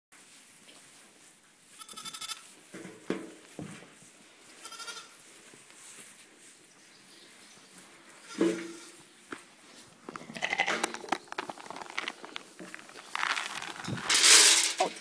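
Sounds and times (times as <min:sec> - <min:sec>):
sheep bleating: 0:01.8 - 0:02.5, 0:04.6 - 0:05.1, 0:10.2 - 0:10.9.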